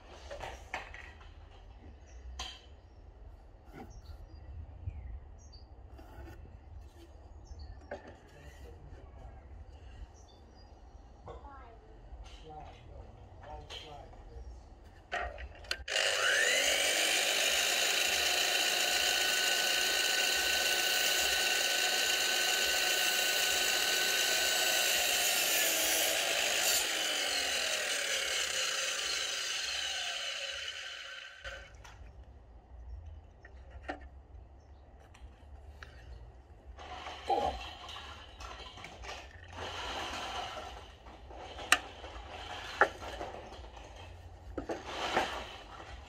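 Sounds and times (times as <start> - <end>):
mitre saw cutting wood: 15.7 - 31.8, 39.5 - 41.0, 41.7 - 43.4, 44.6 - 46.0.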